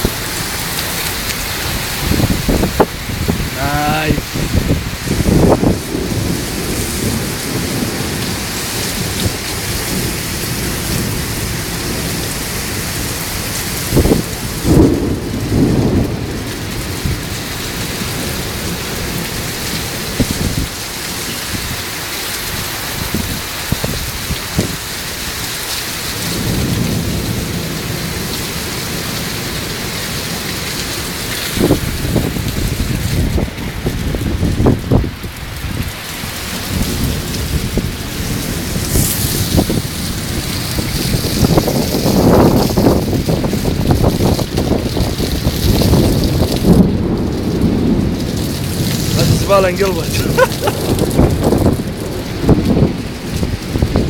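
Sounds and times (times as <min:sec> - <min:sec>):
heavy rain pouring: 0:00.0 - 0:54.0
wind surges: 0:01.4 - 0:10.2.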